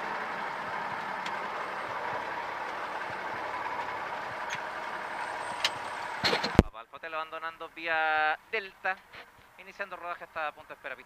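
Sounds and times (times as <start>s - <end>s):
airplane piston engine humming: 0.0s - 6.7s.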